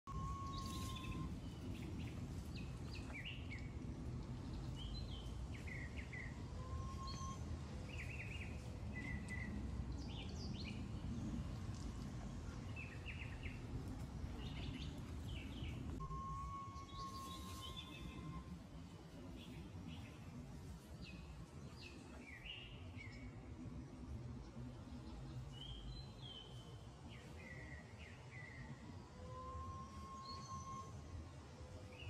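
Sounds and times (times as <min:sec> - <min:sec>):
whistle-like tone: 0:00.1 - 0:01.3, 0:06.5 - 0:07.4, 0:16.0 - 0:18.5, 0:29.2 - 0:31.1
small birds chirping: 0:00.1 - 0:11.9, 0:12.5 - 0:18.5
steady low rumble: 0:00.1 - 0:32.0.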